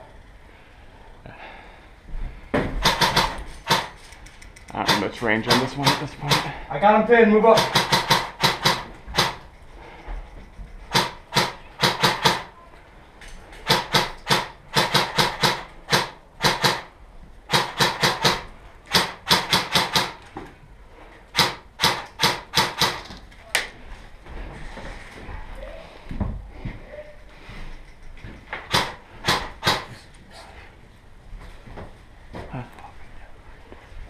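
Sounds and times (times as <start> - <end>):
airsoft gun firing: 2.8 - 4.0, 4.8 - 6.6, 7.5 - 9.4, 10.9 - 12.5, 13.6 - 16.9, 17.5 - 20.2, 21.3 - 23.0, 28.7 - 29.9.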